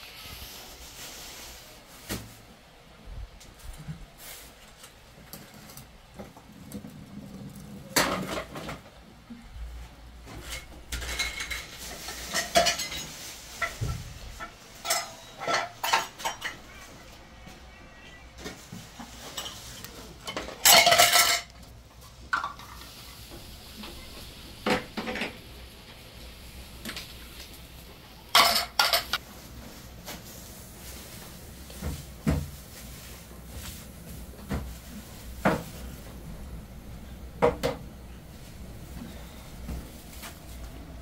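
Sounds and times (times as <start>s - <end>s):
loud kitchenware clatter: 5.2s - 9.0s, 10.2s - 17.1s, 18.4s - 25.7s, 28.2s - 29.2s
dishes knocking and clinking: 10.3s - 16.8s, 19.2s - 21.6s, 24.6s - 25.4s, 28.3s - 29.2s, 37.4s - 37.8s.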